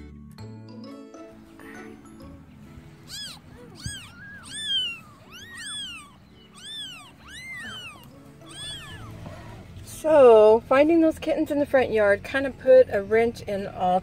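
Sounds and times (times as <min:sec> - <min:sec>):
kittens mewing: 0:03.0 - 0:09.7.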